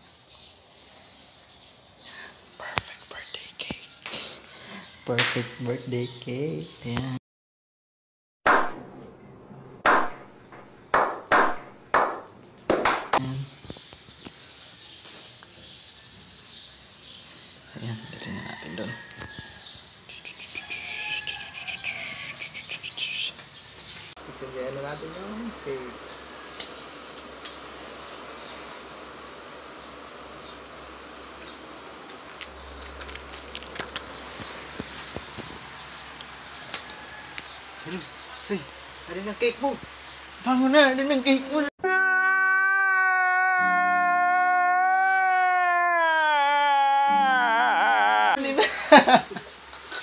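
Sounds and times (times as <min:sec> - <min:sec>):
background hiss: 0:00.0 - 0:05.6, 0:13.0 - 0:41.7, 0:42.4 - 0:50.0
hand claps with echo: 0:11.0 - 0:13.2
match struck on matchbox: 0:32.3 - 0:35.5.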